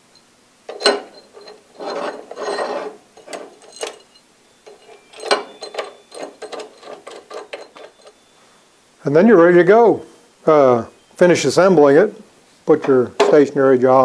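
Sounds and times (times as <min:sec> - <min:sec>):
metal scraping across steel plate: 0:00.7 - 0:08.2
small metal clicks and knocks: 0:00.7 - 0:08.2.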